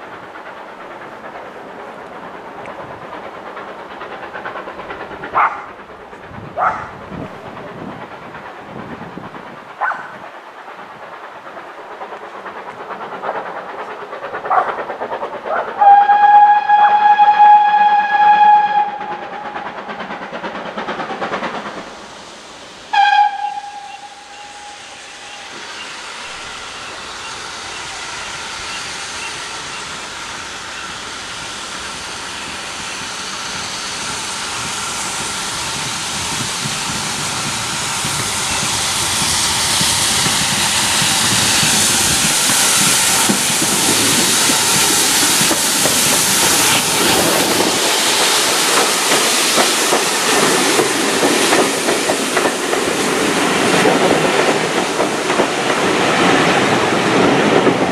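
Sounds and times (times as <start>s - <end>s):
steam hiss: 0.0s - 57.9s
train running noise: 0.0s - 57.9s
steam locomotive whistle: 15.7s - 19.6s, 22.9s - 30.0s.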